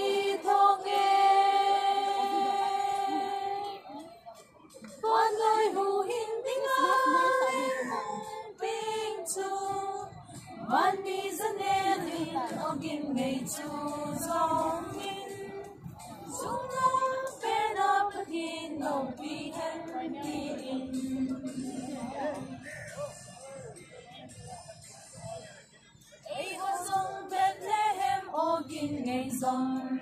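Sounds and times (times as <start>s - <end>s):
woman singing sustained notes: 5.4s - 10.0s.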